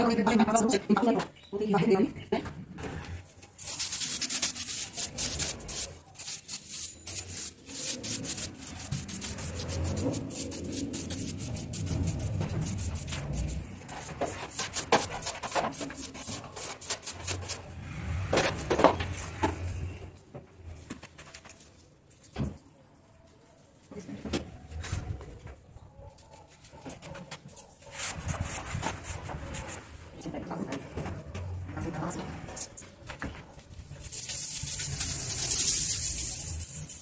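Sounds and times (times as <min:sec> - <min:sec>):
scrubbing against a surface: 0:03.2 - 0:17.7, 0:26.3 - 0:30.2.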